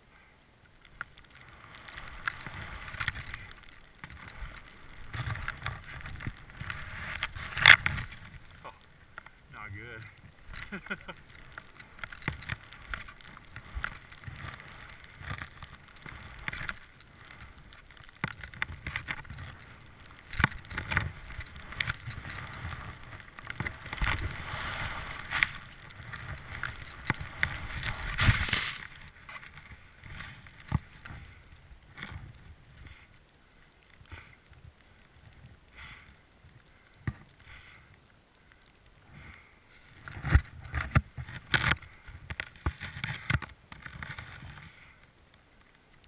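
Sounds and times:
skis swishing through powder snow: 0:01.2 - 0:36.5
knocks of skis and poles: 0:10.4 - 0:33.0, 0:40.1 - 0:44.9.

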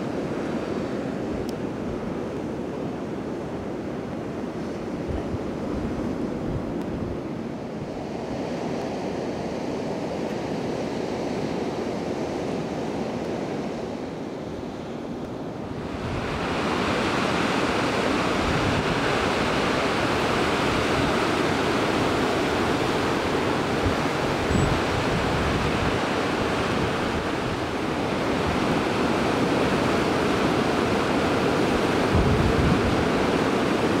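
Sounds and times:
ocean surf breaking: 0:00.0 - 0:34.0
wind buffeting microphone: 0:04.2 - 0:09.5, 0:15.6 - 0:34.0.

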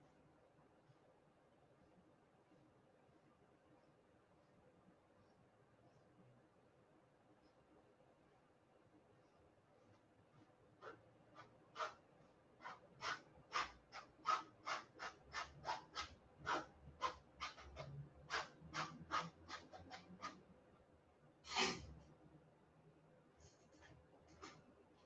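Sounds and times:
paintbrush scraping on canvas: 0:09.9 - 0:20.5.

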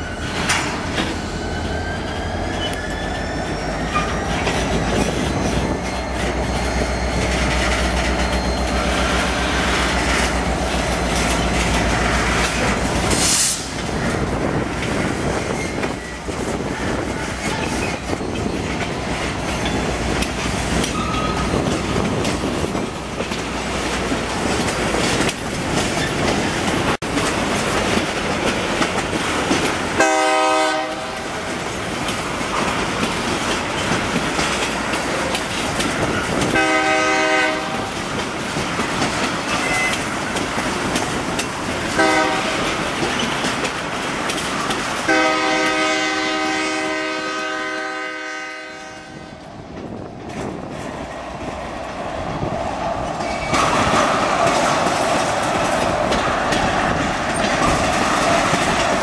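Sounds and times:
freight train wheels clicking: 0:00.0 - 0:59.0
locomotive horn blast: 0:30.0 - 0:31.3, 0:36.5 - 0:37.9, 0:42.0 - 0:42.7, 0:45.1 - 0:49.4.

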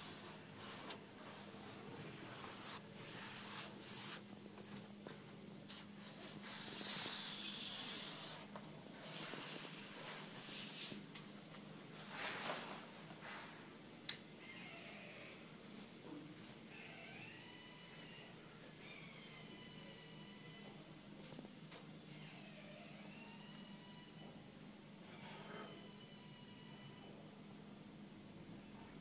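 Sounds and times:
faint steady hum: 0:00.0 - 0:29.0
fabric rubbing and scuffing: 0:00.1 - 0:04.8.

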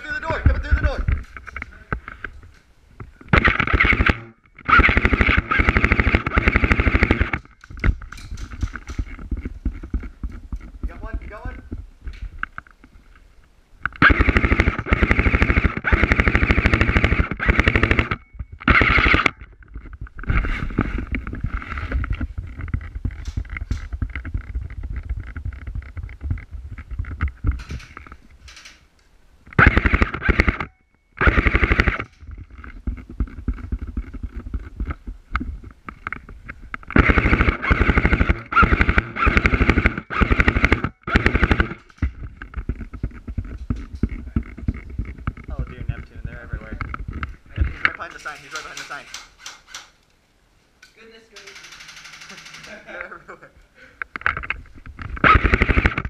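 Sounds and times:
airsoft rifle full-auto bursts: 0:03.3 - 0:07.4, 0:14.0 - 0:19.3, 0:29.6 - 0:32.1, 0:36.9 - 0:41.8, 0:51.5 - 0:52.8, 0:55.2 - 0:56.0.

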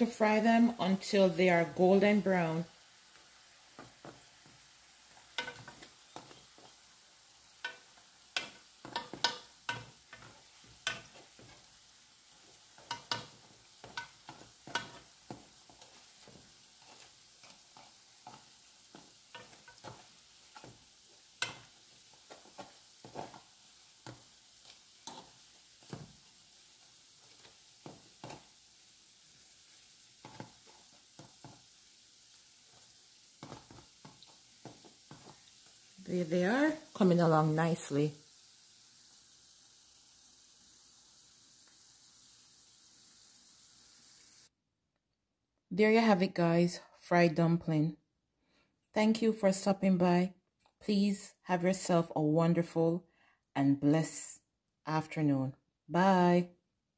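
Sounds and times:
dumplings sizzling in oil: 0:00.0 - 0:44.5
metal fork tapping pot: 0:08.4 - 0:11.2.

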